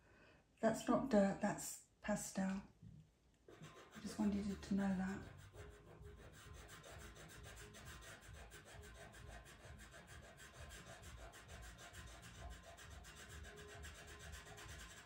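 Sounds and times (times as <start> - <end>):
pencil scratching on paper: 3.5 - 15.0.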